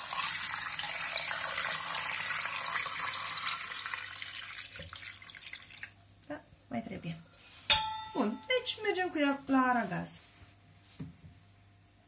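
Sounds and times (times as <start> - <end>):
water pouring into a pot: 0.0 - 6.1.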